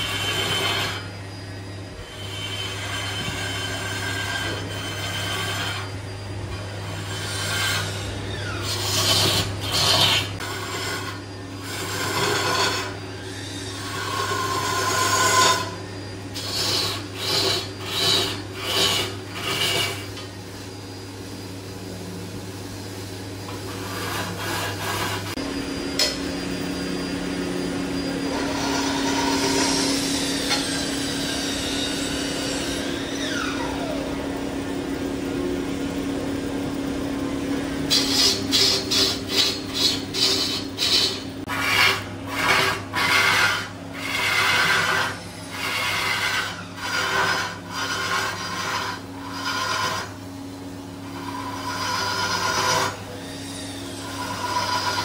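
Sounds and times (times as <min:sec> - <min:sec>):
pad rasping on spinning log: 0:00.0 - 0:01.1, 0:02.0 - 0:05.9, 0:06.5 - 0:20.3, 0:23.5 - 0:25.4, 0:37.8 - 0:50.2, 0:51.0 - 0:55.0
lathe motor humming: 0:00.0 - 0:55.0.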